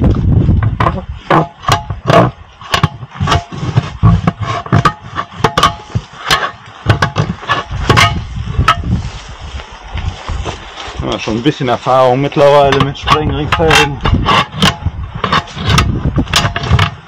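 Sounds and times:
metal blows on wheel rim: 0.0 - 9.1, 12.6 - 17.0.

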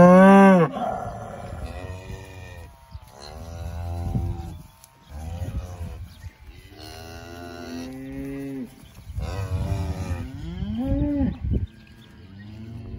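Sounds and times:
cows mooing: 0.0 - 4.6.

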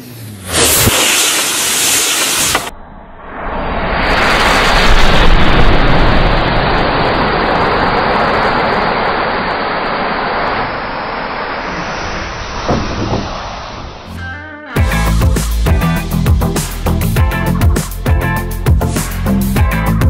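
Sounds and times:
matches flaring in rushing whoosh: 0.3 - 14.1
fire crackles: 0.5 - 2.7, 4.0 - 13.7.

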